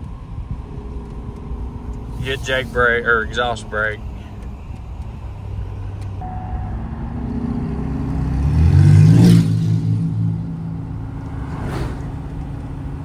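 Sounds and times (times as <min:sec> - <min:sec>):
diesel truck engine revving: 0:00.0 - 0:13.0
brief rush of air: 0:11.5 - 0:12.2.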